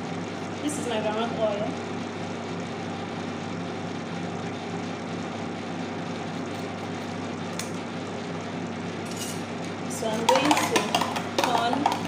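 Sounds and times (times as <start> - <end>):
microwave oven humming: 0.0 - 12.0.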